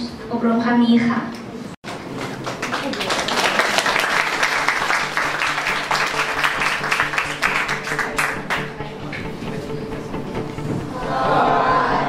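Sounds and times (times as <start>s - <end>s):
audience applauding: 1.8s - 8.8s
background music: 2.3s - 12.0s.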